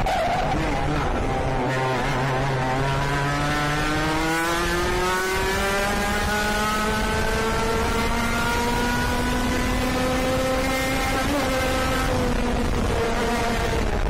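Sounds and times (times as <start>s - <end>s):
kart engine accelerating: 0.0s - 14.0s.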